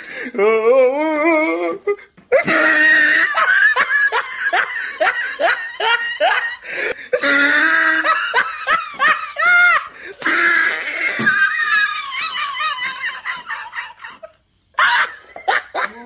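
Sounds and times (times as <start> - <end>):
person laughing: 1.0 - 16.0.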